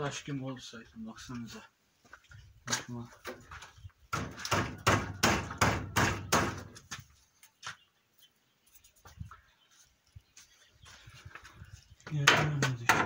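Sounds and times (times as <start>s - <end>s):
wood knocking on wood: 12.1s - 13.0s.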